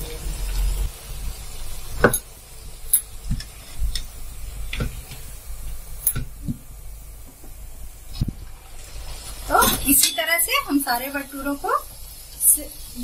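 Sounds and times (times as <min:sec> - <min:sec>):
metal spoon tapping a pan: 0:09.7 - 0:10.2.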